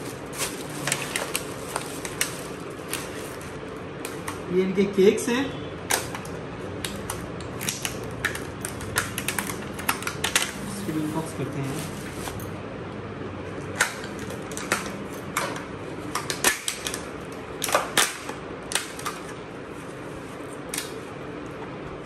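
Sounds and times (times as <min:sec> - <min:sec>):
plastic container clicking and crackling: 0:05.9 - 0:10.6.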